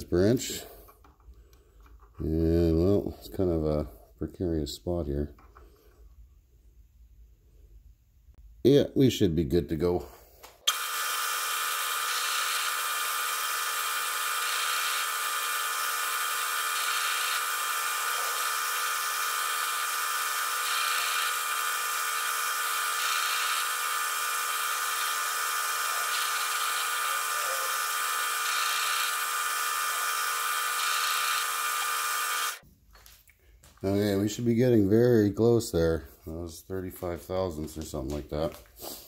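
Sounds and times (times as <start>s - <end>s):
metal lathe whirring: 10.7s - 32.6s.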